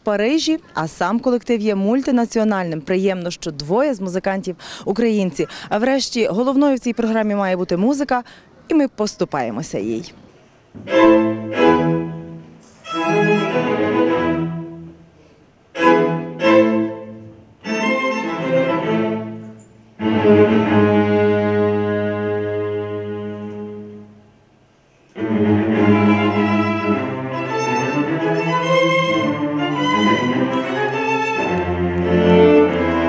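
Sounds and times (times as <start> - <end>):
string quartet playing: 10.8 - 15.0, 15.7 - 24.2, 25.1 - 33.0.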